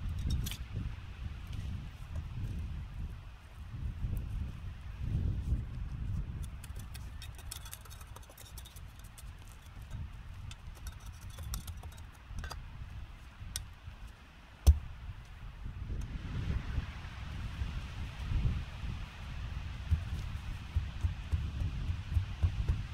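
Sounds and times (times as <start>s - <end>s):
bar knocking into soil: 14.6s - 14.9s
hard thud: 14.6s - 14.9s.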